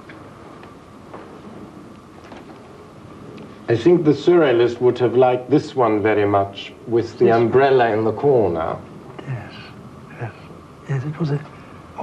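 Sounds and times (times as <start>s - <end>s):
low tape hiss: 0.0s - 12.0s.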